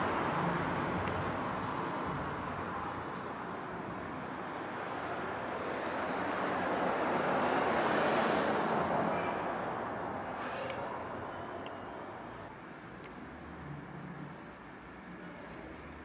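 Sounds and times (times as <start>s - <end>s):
vehicle passing: 0.0s - 12.5s
traffic rumble: 0.0s - 16.0s.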